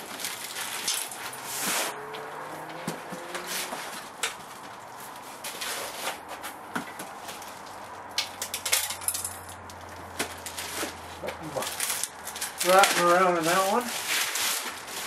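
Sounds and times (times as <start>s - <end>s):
plastic wrap and foam crinkling: 0.0s - 1.9s, 9.8s - 15.0s.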